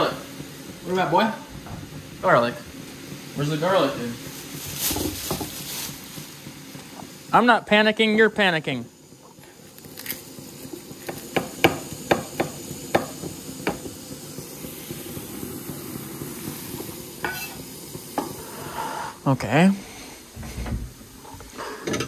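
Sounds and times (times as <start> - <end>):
frying sizzle: 0.0 - 22.0
knife chopping on wooden board: 11.0 - 13.8.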